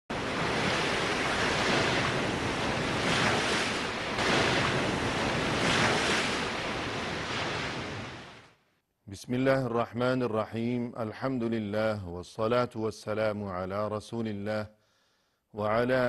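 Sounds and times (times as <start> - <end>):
wind-like whoosh: 0.1 - 8.5.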